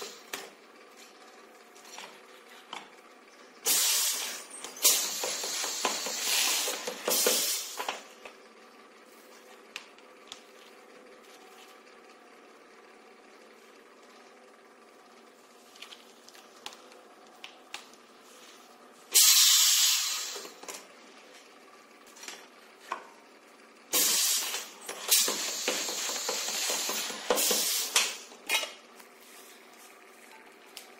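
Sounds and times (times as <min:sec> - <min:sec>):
compressed air hissing: 0:03.6 - 0:07.8, 0:19.1 - 0:20.5, 0:23.9 - 0:28.2.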